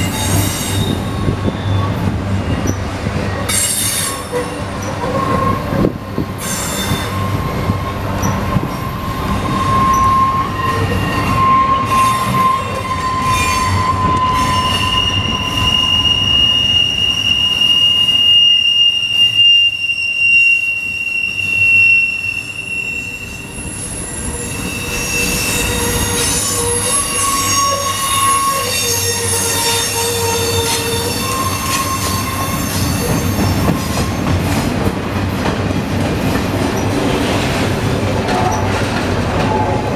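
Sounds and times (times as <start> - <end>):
train wheels squealing on rails: 0.0 - 34.8, 36.3 - 39.9
train cars rumbling: 0.0 - 39.9.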